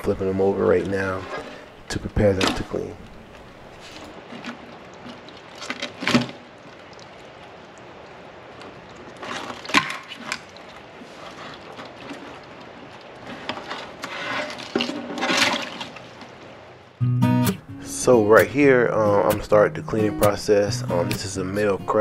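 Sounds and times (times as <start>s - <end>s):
crab shells knocking and clattering: 2.3s - 7.1s, 8.6s - 10.9s, 11.5s - 16.3s.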